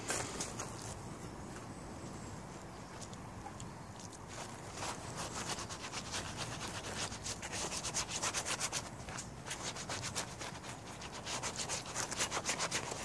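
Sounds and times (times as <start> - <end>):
hands rubbing hide on plastic tarp: 4.3 - 13.0.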